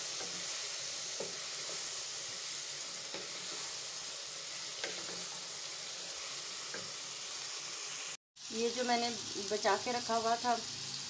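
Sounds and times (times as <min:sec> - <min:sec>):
spatula scraping pan: 0:00.0 - 0:07.5
food sizzling in oil: 0:00.0 - 0:11.0.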